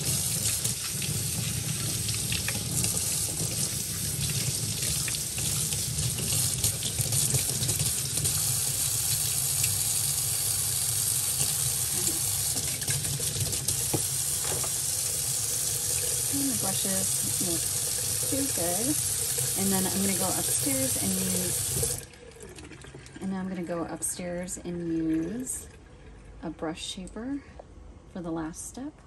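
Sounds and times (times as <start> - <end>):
tap water running into sink: 0.0 - 23.2.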